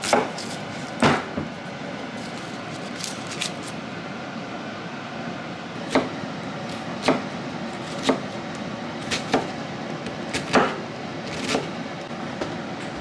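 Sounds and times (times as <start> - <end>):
knife chopping on wooden board: 0.0 - 1.4, 5.9 - 6.2, 7.0 - 7.3, 7.9 - 8.3, 9.0 - 9.5, 10.3 - 11.7
steady background hum: 0.0 - 13.0.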